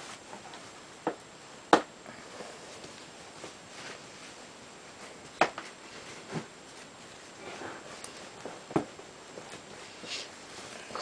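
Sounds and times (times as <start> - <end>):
straps rustling: 2.4 - 11.0.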